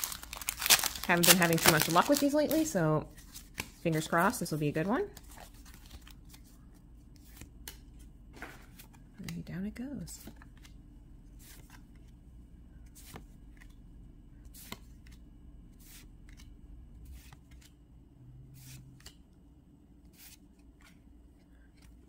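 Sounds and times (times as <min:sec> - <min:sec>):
trading cards swishing: 0:17.1 - 0:17.7, 0:18.6 - 0:19.2, 0:20.1 - 0:21.0.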